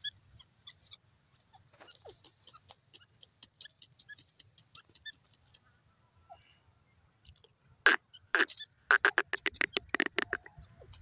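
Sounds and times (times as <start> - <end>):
francolin calling: 7.9 - 10.6.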